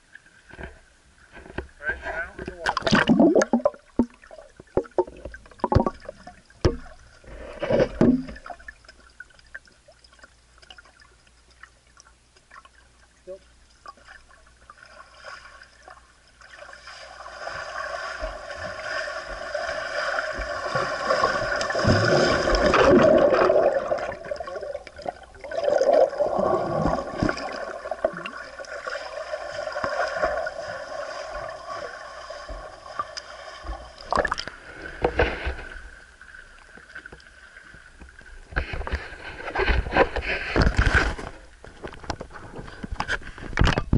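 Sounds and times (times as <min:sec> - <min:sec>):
splashing and lapping water: 0:02.5 - 0:43.7
rushing and bubbling water: 0:02.7 - 0:11.1, 0:16.4 - 0:32.9.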